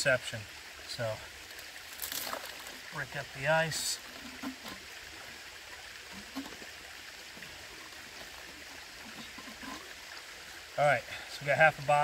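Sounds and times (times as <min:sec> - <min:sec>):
creek water over rocks: 0:00.0 - 0:12.0
water bottle filling gurgles: 0:01.8 - 0:11.2.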